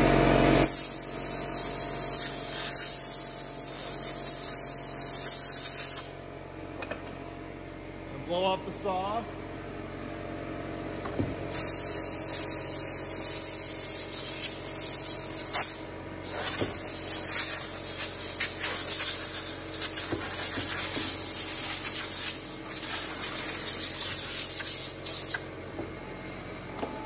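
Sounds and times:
compressed air blow gun hissing: 0:00.6 - 0:06.1, 0:11.5 - 0:25.4
light knocks on bench: 0:11.0 - 0:11.4.

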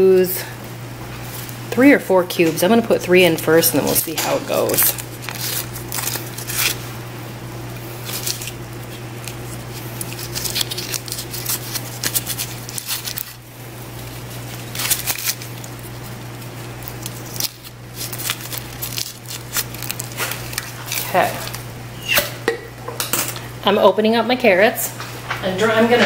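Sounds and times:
steady low hum: 0:00.0 - 0:26.0
wrapper crinkling: 0:03.7 - 0:07.0, 0:07.7 - 0:21.8.

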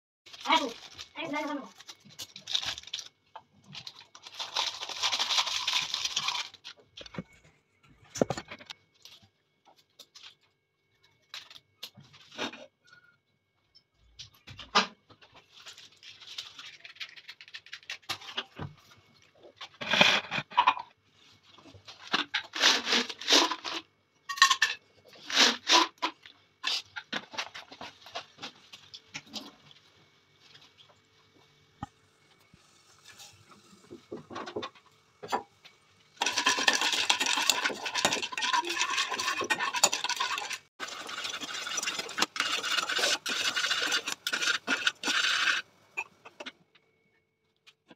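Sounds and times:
sachet rustling: 0:00.3 - 0:06.8.

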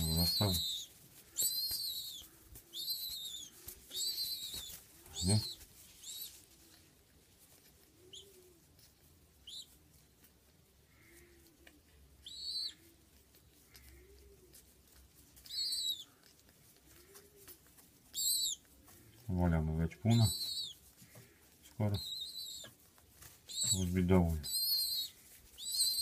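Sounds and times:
young pigeon begging squeaks: 0:00.0 - 0:06.5, 0:08.0 - 0:08.6, 0:09.4 - 0:09.8, 0:12.2 - 0:12.9, 0:15.4 - 0:16.2, 0:16.9 - 0:19.1, 0:20.1 - 0:22.8, 0:23.4 - 0:26.0.

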